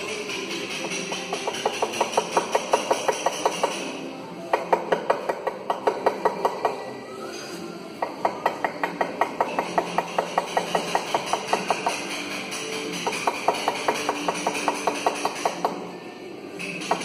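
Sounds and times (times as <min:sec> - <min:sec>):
mallet tapping chisel into stone: 0:00.6 - 0:06.9, 0:08.0 - 0:15.9.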